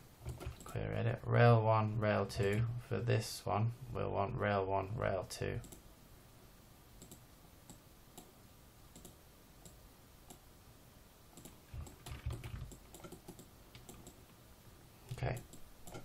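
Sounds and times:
computer mouse clicks: 0:05.6 - 0:05.8, 0:07.0 - 0:08.3, 0:08.9 - 0:10.4, 0:11.4 - 0:14.2, 0:15.1 - 0:16.0.

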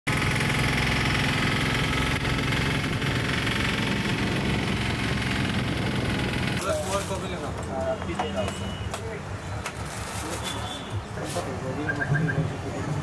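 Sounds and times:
engine running: 0:00.1 - 0:06.9.

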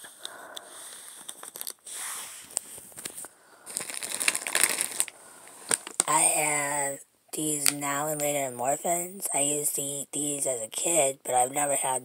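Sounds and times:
plastic packaging crinkling: 0:01.2 - 0:06.2.

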